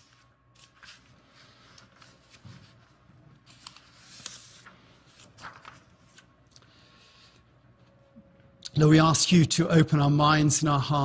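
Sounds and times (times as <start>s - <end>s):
paper sheets rustling: 0.0s - 6.4s.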